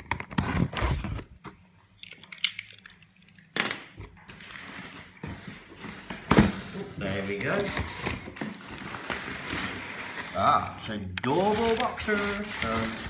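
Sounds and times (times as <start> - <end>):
cardboard rustling: 11.4 - 13.0.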